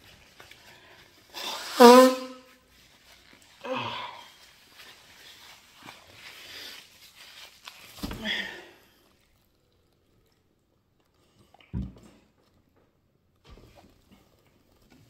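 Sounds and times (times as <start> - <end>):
tissue rustling: 0.0 - 1.4, 2.5 - 9.7.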